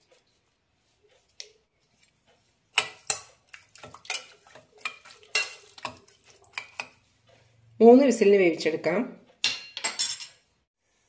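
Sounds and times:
spoon clinking against metal pot: 2.7 - 7.0, 9.4 - 10.4.

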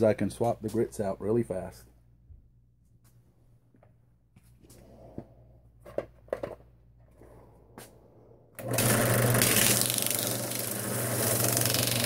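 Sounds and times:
drill press humming: 8.6 - 12.0.

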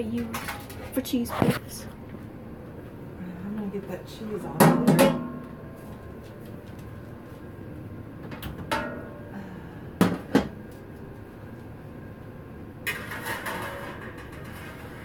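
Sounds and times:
pan scraping onto oven rack: 12.9 - 15.0.

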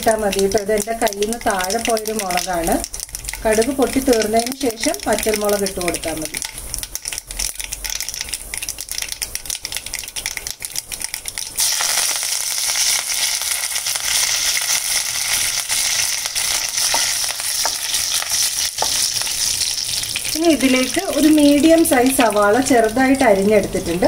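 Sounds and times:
loud sizzle in oil: 0.0 - 24.0
mustard seeds popping in oil: 0.0 - 24.0
wooden spatula stirring: 15.3 - 21.6.

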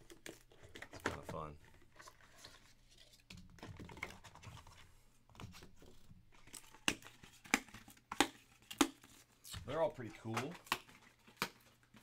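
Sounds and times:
wrapping tearing and crinkling: 5.8 - 12.0.

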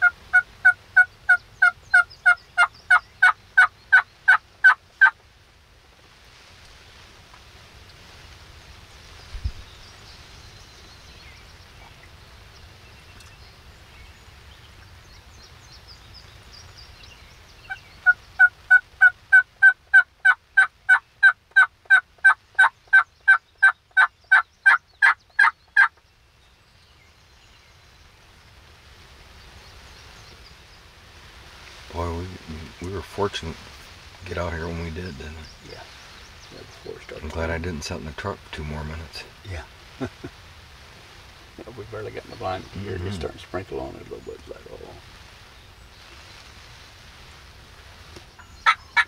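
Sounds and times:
wind hiss: 0.0 - 49.0
turkey call hen yelps: 17.7 - 25.9, 48.6 - 49.0.

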